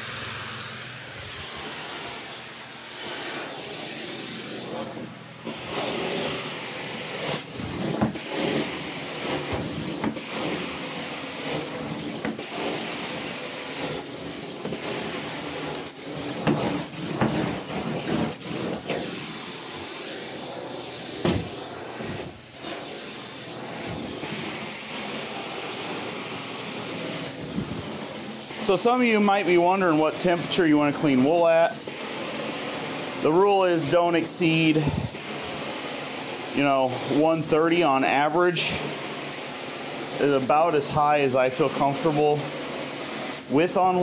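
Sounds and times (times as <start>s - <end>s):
carpet extraction wand suction hiss: 0.0s - 31.1s.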